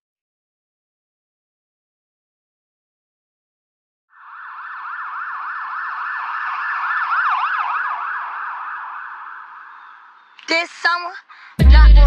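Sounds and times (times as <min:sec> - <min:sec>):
emergency siren yelping: 0:04.1 - 0:10.5.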